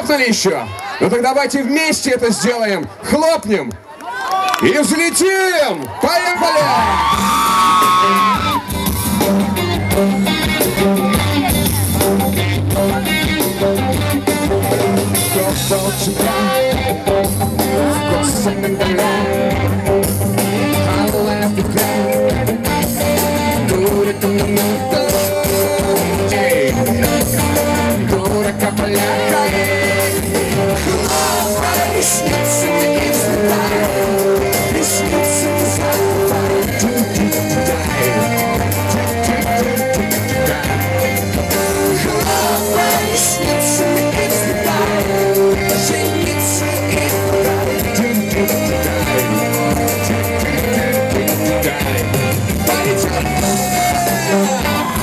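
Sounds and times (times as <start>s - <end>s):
pop-rock band playing: 6.5s - 55.0s
man singing: 12.7s - 55.0s.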